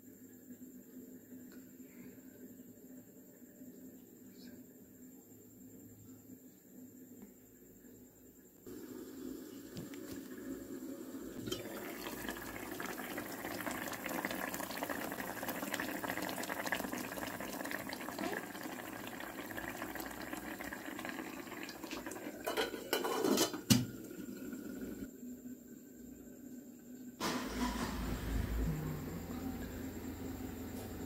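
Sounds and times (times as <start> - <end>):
curry bubbling at a simmer: 8.7 - 25.1.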